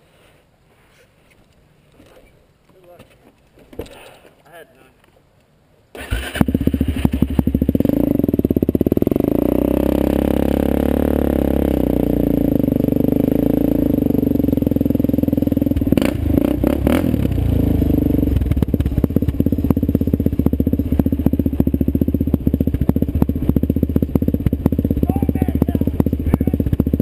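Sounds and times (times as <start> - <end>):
quad engine running hard: 6.4 - 27.0.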